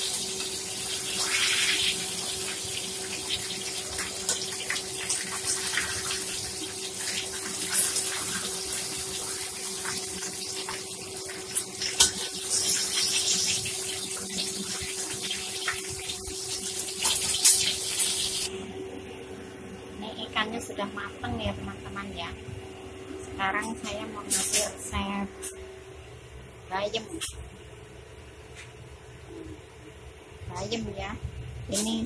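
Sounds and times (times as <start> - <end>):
fish sizzling in hot oil: 0.0 - 18.5.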